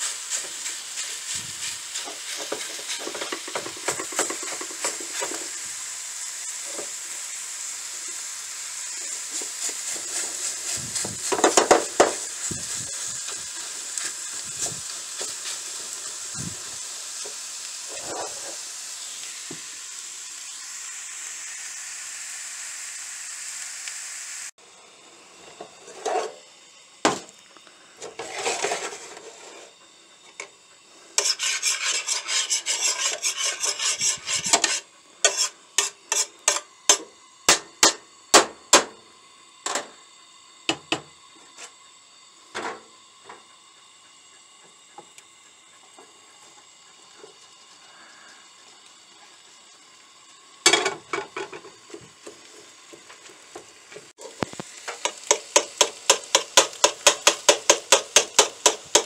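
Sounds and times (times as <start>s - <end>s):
vegetables sizzling in pan: 0.0s - 59.0s
spoon scraping pan: 28.0s - 29.7s, 31.2s - 37.0s.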